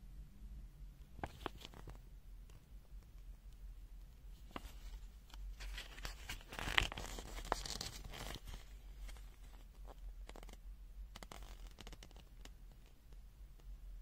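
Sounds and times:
packaging crinkling and rustling: 1.2 - 2.0, 4.4 - 10.6.

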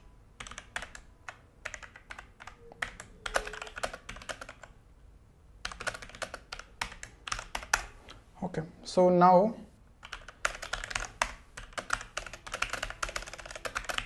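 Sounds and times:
mechanical keyboard typing: 0.4 - 4.8, 5.6 - 8.0, 10.0 - 14.0.

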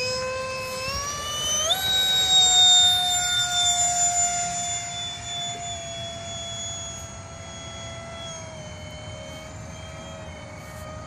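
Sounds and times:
model jet fan whining: 0.0 - 11.0.

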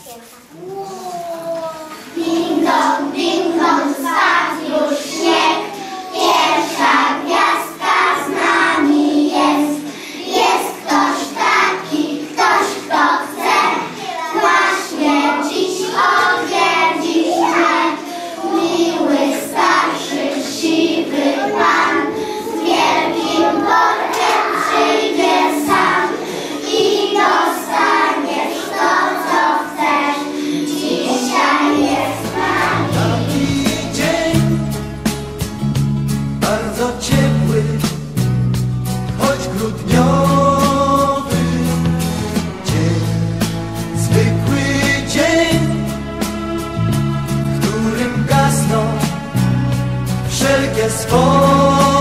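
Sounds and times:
children singing: 0.6 - 34.8, 50.4 - 52.0
accompanying music: 1.0 - 52.0.

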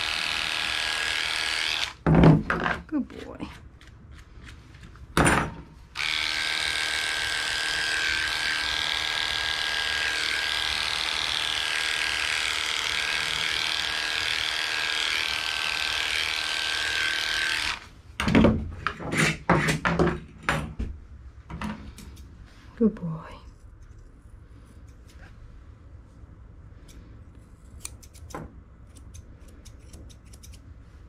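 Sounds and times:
dog clipper humming: 0.0 - 2.0, 6.0 - 17.9.

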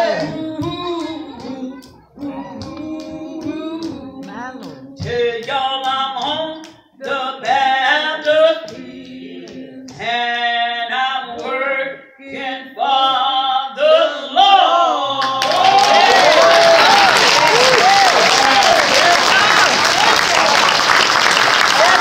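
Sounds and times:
woman singing unaccompanied: 0.0 - 14.3.

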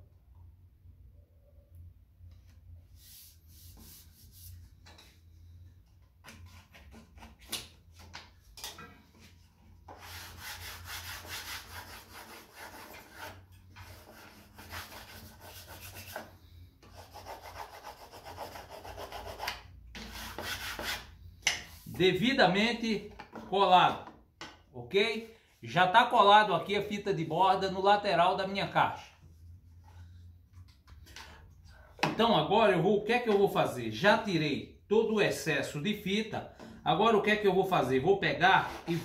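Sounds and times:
wooden block rubbing on wood: 9.9 - 22.0, 38.5 - 39.0.

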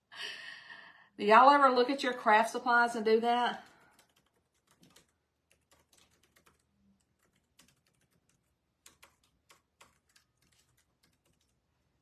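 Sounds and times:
typing on a keyboard: 3.5 - 11.7.

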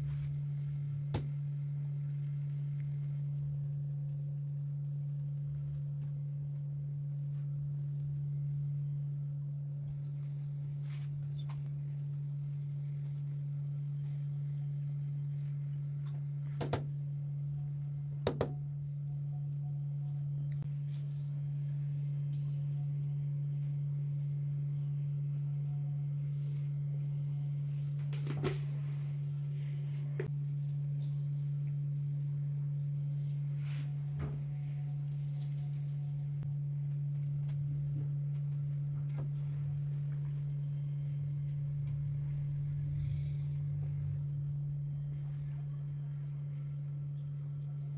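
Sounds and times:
steady low hum: 0.0 - 47.9.

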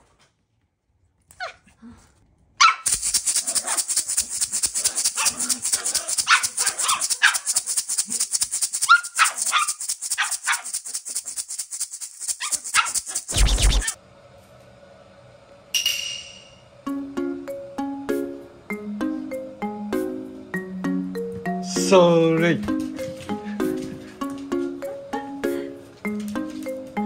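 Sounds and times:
dog yapping: 2.6 - 11.0, 12.2 - 14.0
maracas rattling: 2.8 - 14.0.

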